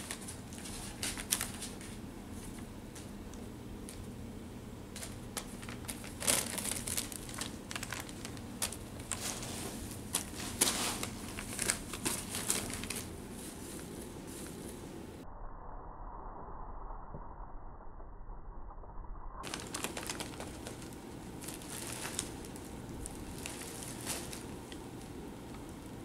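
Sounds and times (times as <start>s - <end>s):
packing paper crinkling: 0.0s - 2.6s, 4.9s - 14.8s, 19.4s - 26.0s.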